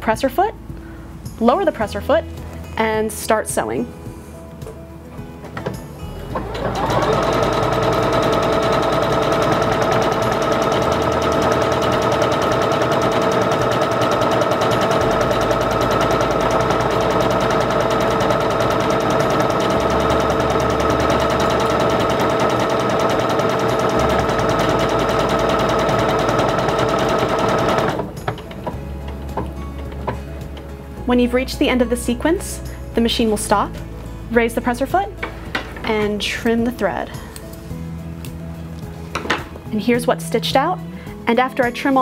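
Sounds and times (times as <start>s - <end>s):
sewing machine motor whine: 6.3s - 28.6s
sewing needle chatter: 6.7s - 28.1s.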